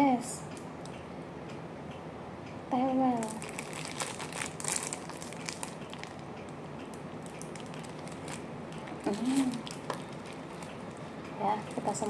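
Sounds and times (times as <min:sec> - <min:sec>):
plastic bag crinkling: 0:03.2 - 0:06.2, 0:07.2 - 0:12.0
woman humming: 0:09.0 - 0:09.7.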